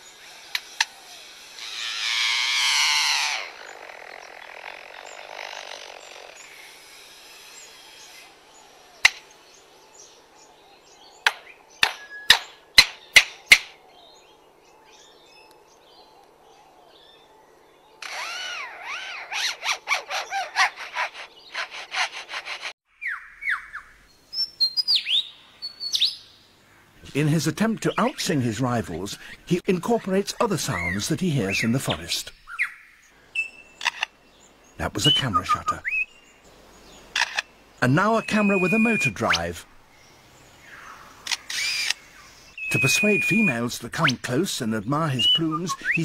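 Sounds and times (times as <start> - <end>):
loud rasping burst: 0.5 - 8.4, 18.0 - 22.8
rising and falling bird notes: 37.8 - 39.7, 42.5 - 44.2.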